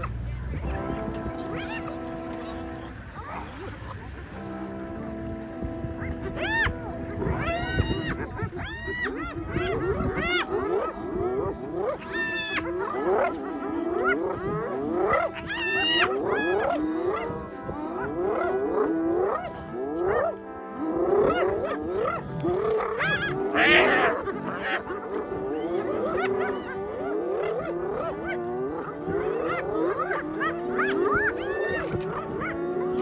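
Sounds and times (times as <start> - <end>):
high animal cry: 1.5 - 3.8, 6.0 - 20.4, 21.0 - 33.0.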